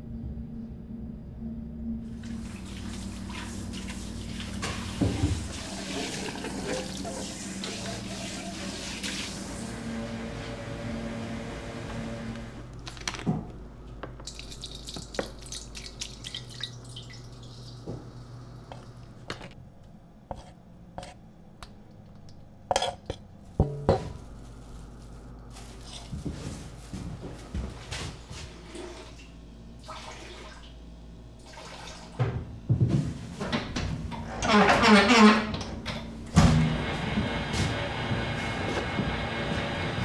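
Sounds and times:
low hum: 0:00.0 - 0:05.1, 0:17.2 - 0:29.9.

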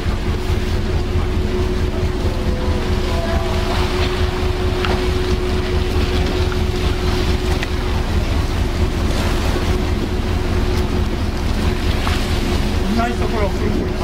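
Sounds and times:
ship engine rumbling: 0:00.0 - 0:14.0.

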